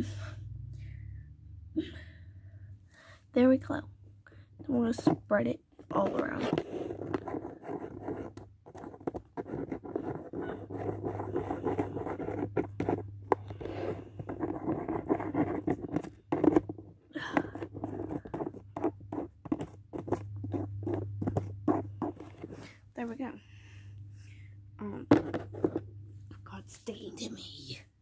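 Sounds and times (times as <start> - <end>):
fingers scratching cardboard: 5.9 - 22.6
low hum: 20.2 - 26.7.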